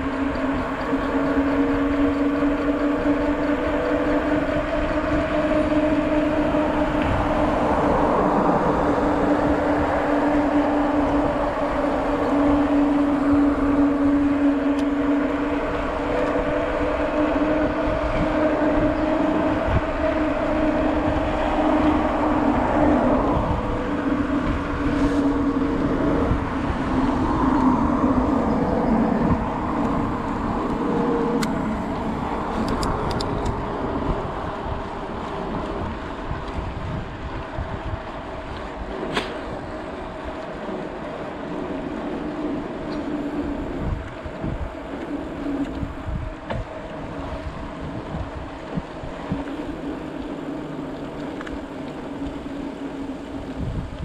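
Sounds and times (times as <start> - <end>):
tyre noise on road: 0.0 - 54.0
wind rushing over microphone: 0.0 - 54.0
light ticks: 48.6 - 54.0.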